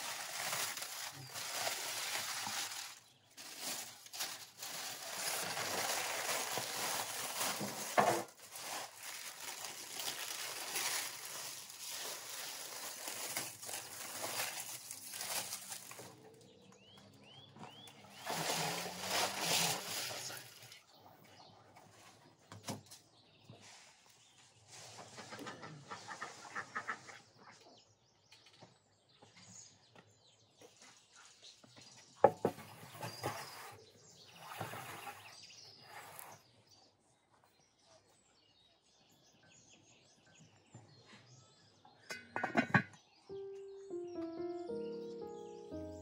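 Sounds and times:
foil crinkling and tearing: 0.0s - 16.2s, 18.1s - 20.8s
bird chirping: 16.0s - 18.4s, 25.6s - 46.0s.

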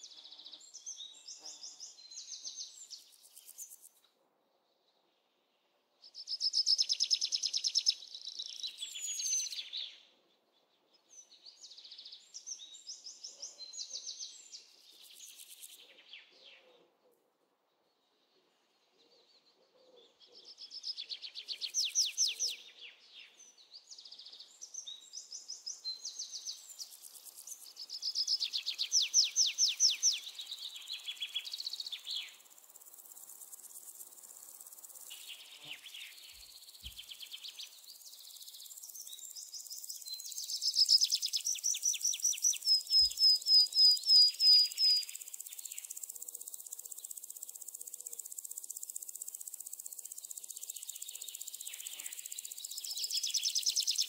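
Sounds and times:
high insect hiss: 15.0s - 15.8s, 26.4s - 54.0s.

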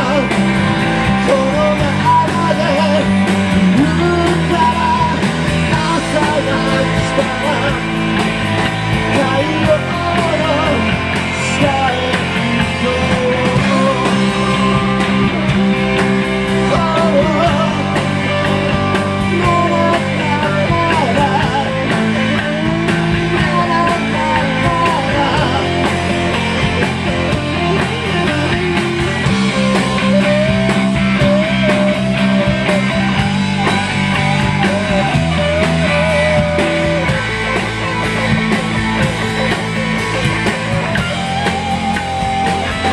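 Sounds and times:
man singing into microphone: 0.0s - 0.4s, 1.2s - 7.9s, 9.1s - 15.4s, 16.6s - 18.6s, 19.2s - 26.0s
live rock band: 0.0s - 42.9s.

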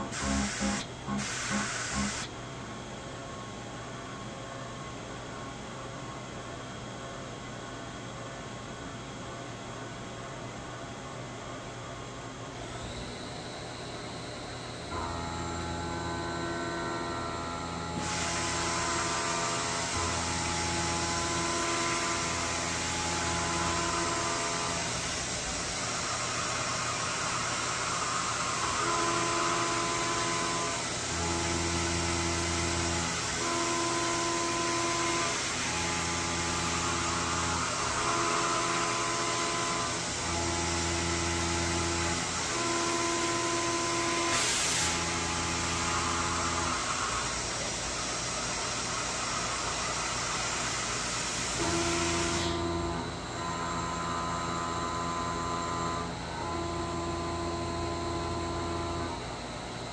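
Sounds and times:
milling machine cutting metal: 0.0s - 2.3s, 15.0s - 47.3s.

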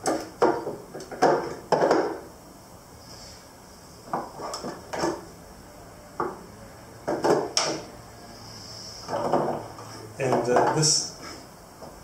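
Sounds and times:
tools knocking and scraping on wood: 0.0s - 2.3s, 4.1s - 5.3s, 7.0s - 7.9s, 9.1s - 11.0s.

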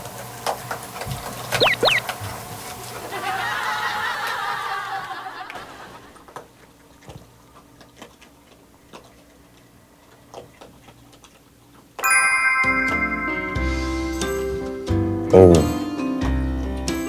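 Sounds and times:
animal crunching dry kibble: 6.3s - 12.0s.

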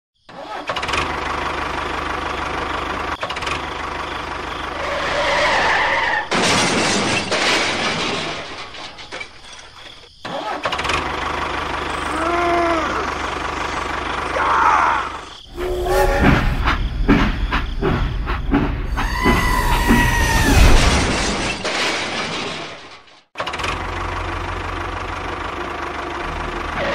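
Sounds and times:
tractor engine running: 0.7s - 10.0s, 10.7s - 14.6s, 23.4s - 26.9s
loud rushing noise: 4.8s - 6.6s.

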